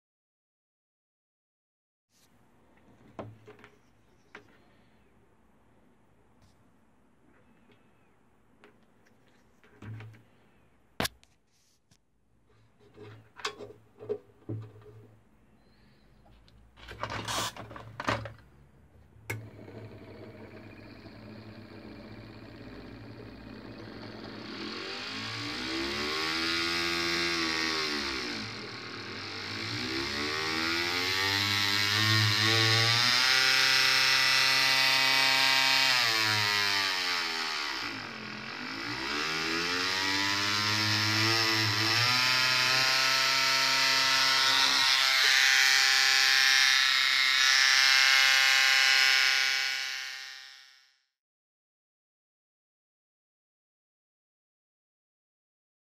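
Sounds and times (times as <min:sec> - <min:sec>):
mini grinder motor whining: 0:19.3 - 0:51.0.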